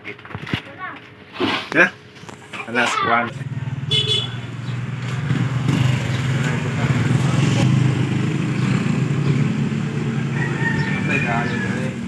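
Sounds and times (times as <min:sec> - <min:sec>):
motorcycle engine running: 0:03.2 - 0:12.0.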